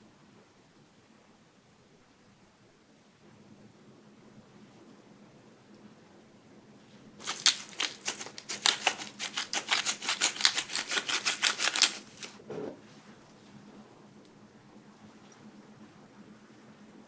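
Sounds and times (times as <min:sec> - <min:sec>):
pepper mill clicking: 0:07.2 - 0:12.4.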